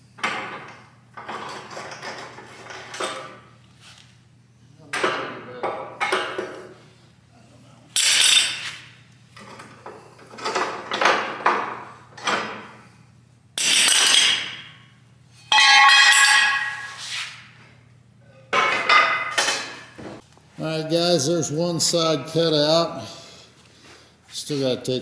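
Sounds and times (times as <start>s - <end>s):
metal clanks scrapes and bangs: 15.4s - 17.5s.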